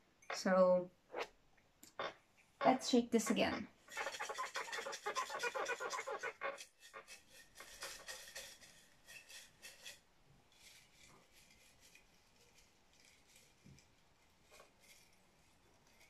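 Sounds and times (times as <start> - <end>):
paper slips rattling in a mug: 3.8 - 16.0
fingers rustling papers: 3.9 - 16.0.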